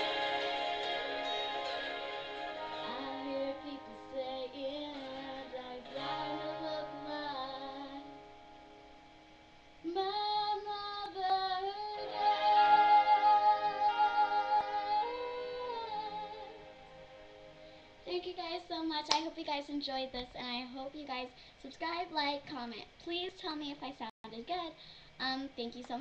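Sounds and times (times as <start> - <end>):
backing music: 0.0 - 8.4, 12.0 - 17.8
girl singing a ballad: 0.0 - 8.4, 9.8 - 17.0, 17.6 - 26.0.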